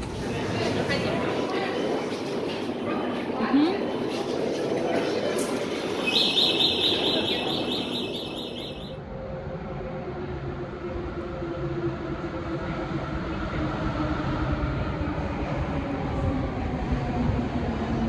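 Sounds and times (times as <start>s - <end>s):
metro train rumbling: 0.0s - 18.0s
rapid electronic beeping: 6.0s - 9.0s.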